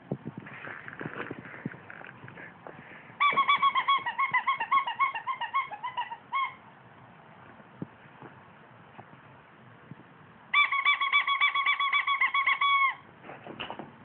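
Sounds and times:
rubber chicken toy squeaking: 3.2 - 6.6, 10.5 - 13.0.

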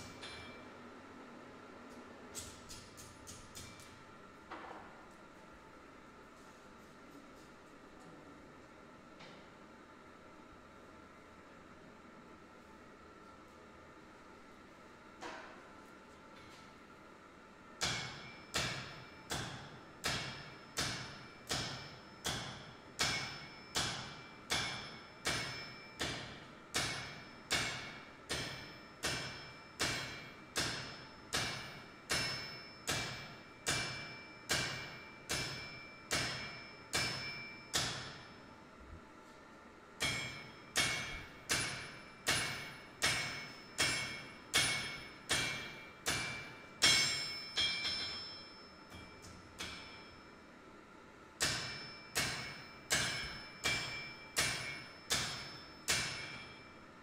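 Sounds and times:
hammer ringing on anvil: 0.0 - 0.8, 17.8 - 38.5, 40.0 - 50.5, 51.4 - 56.9.

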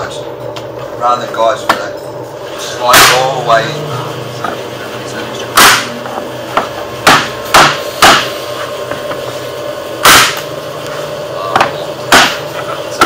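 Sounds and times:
mallet striking flooring stapler: 10.0 - 10.4.

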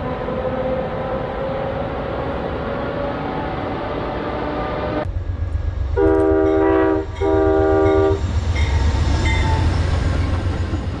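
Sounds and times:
low rumble of train: 0.0 - 11.0
locomotive air horn blasts: 6.0 - 8.2.

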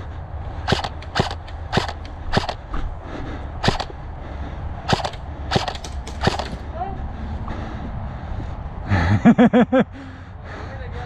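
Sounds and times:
steady low rumble: 0.0 - 11.0
airsoft gun shots: 0.7 - 2.6, 3.6 - 4.0, 4.9 - 6.6.

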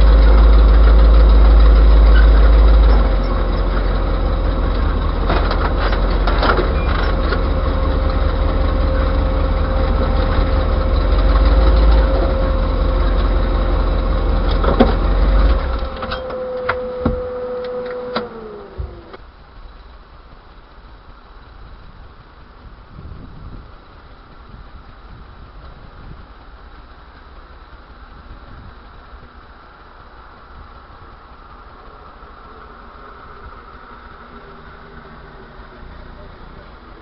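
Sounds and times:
engine knocks: 0.0 - 17.4
engine whine: 0.0 - 37.0
truck engine low rumble: 0.0 - 37.0.

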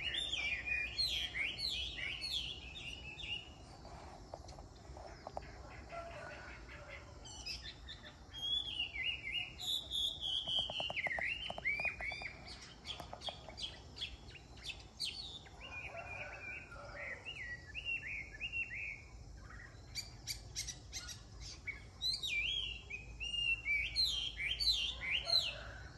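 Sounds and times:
songbird singing whistled phrases: 7.3 - 13.1, 17.4 - 25.3.

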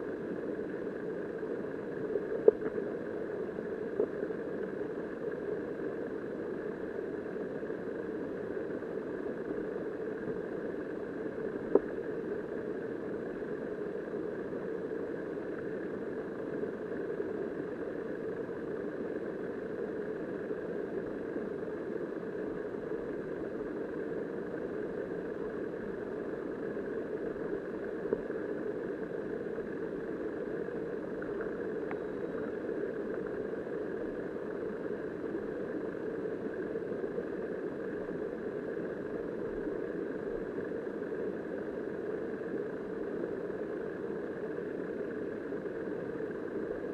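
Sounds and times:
muffled underwater river current: 0.0 - 46.9.

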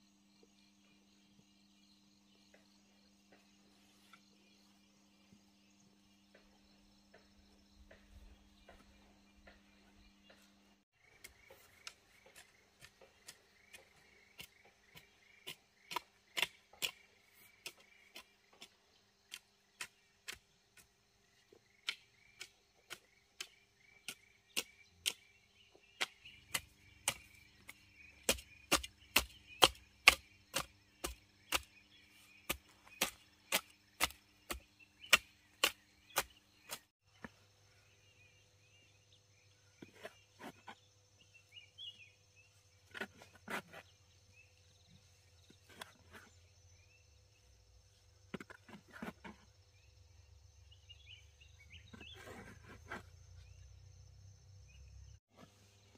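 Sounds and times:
faint insects chirping: 0.0 - 55.9
sharp chopping strikes: 28.2 - 31.7, 32.5 - 36.9.

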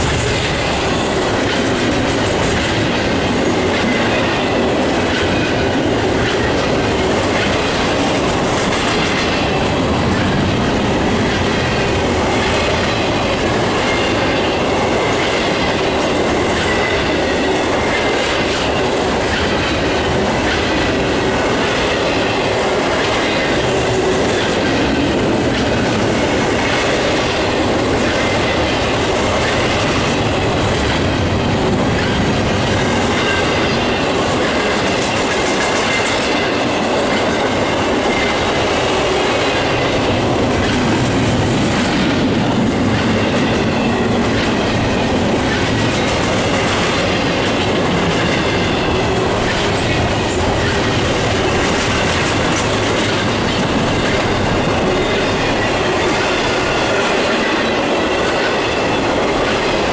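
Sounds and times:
train wheels clattering on rails: 0.0 - 59.9.

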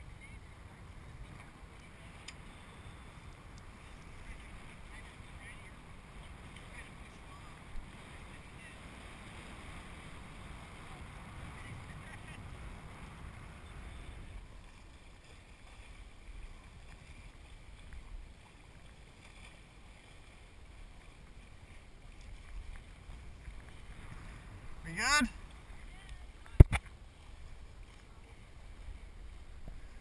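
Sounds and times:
wind buffeting microphone: 0.0 - 14.8, 22.2 - 30.0
faint water hiss: 0.0 - 30.0.

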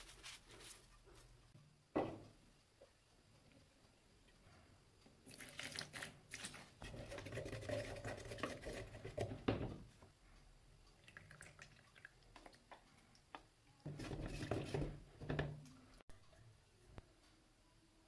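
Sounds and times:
paint stirring with wet squishing: 5.0 - 9.5, 11.1 - 16.1.

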